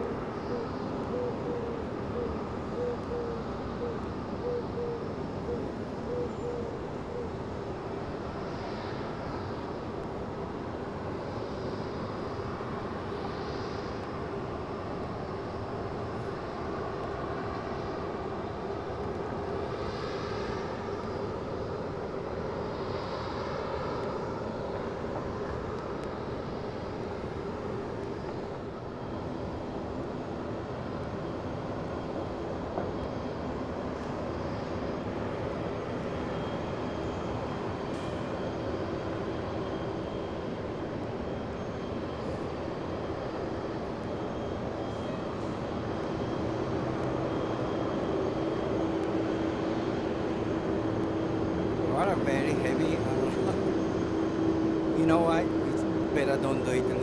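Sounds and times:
jet engines running: 0.0 - 57.0.

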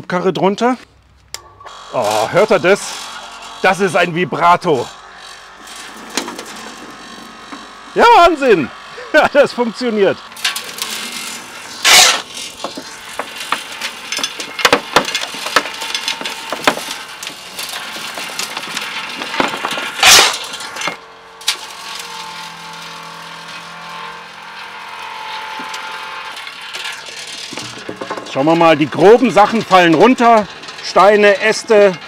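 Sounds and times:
motor hum: 0.8 - 32.0
loud rushing scrape: 1.7 - 21.0
stones rattling on vibrating sieve: 5.8 - 22.6, 25.6 - 32.0.

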